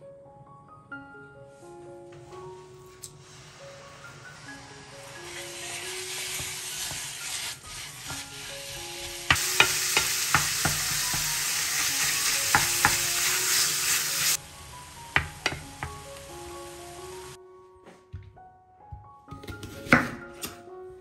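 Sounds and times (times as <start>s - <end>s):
faint background music: 0.0s - 21.0s
spatula scraping a pan: 3.2s - 14.4s
meat sizzling in a pan: 3.2s - 17.4s.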